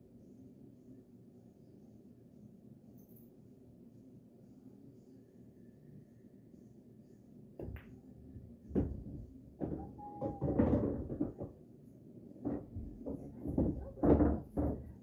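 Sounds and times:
pool balls colliding: 0:08.7 - 0:11.6, 0:12.4 - 0:15.0
ball rolling through ball return: 0:08.8 - 0:11.6, 0:12.4 - 0:15.0.

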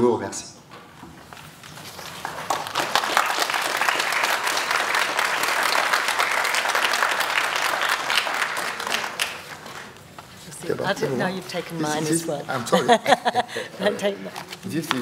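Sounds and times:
audience applauding: 0:01.9 - 0:10.1.

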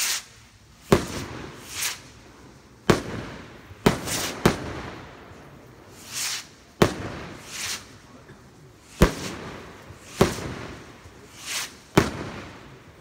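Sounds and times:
rockets hissing on lift-off: 0:01.0 - 0:02.2, 0:05.9 - 0:06.7, 0:07.3 - 0:08.0, 0:11.2 - 0:11.9.

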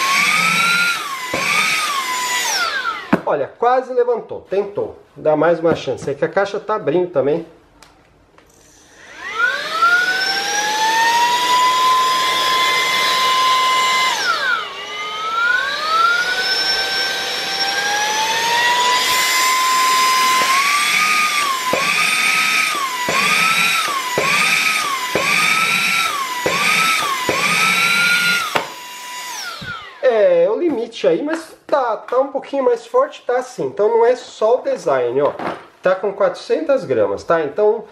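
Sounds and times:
handheld vacuum whining: 0:00.0 - 0:03.3, 0:08.5 - 0:30.3.

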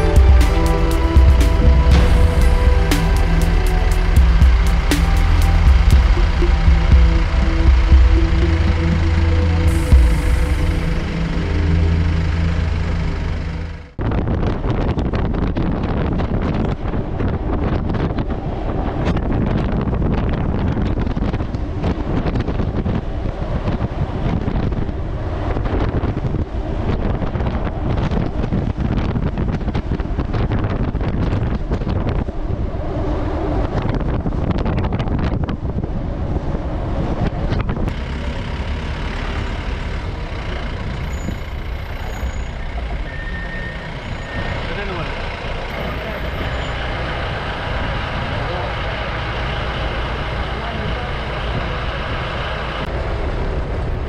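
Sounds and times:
tyre road noise: 0:00.0 - 0:54.0
vehicle engine: 0:00.0 - 0:54.0
wind buffeting microphone: 0:13.9 - 0:43.0.

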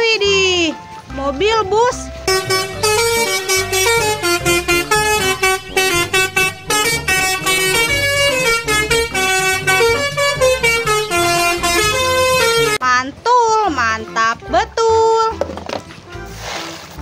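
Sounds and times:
musical air horn playing a tune: 0:02.3 - 0:12.8.

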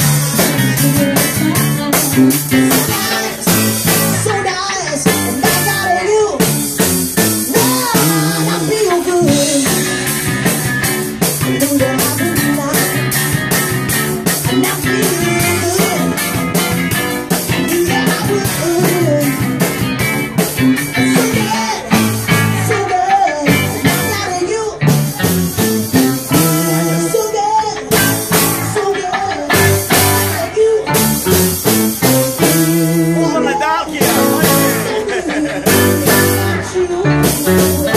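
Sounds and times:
person singing: 0:00.0 - 0:06.5, 0:07.2 - 0:37.9
live band playing: 0:00.0 - 0:37.9.

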